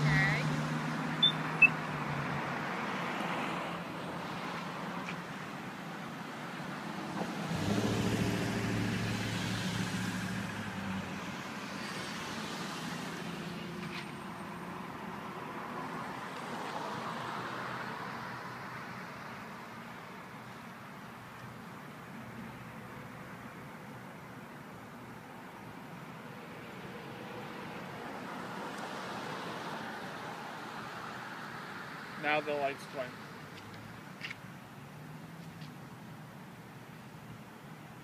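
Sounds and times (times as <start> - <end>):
road traffic: 0.0 - 38.0
vehicle passing close: 6.9 - 19.1.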